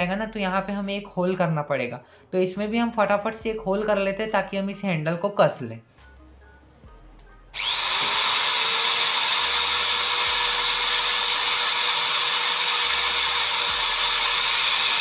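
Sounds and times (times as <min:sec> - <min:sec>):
electric drill whining: 0:07.6 - 0:15.0.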